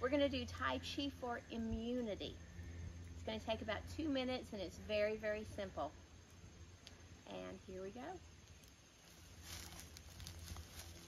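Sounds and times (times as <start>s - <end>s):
low steady hum: 0.0s - 11.0s
dry leaves rustling and crackling: 8.5s - 11.0s.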